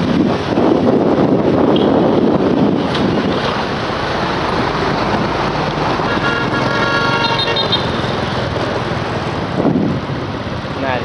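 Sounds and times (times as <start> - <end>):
traffic noise: 0.0 - 11.0
wind: 0.0 - 11.0
vehicle horn: 6.0 - 8.2.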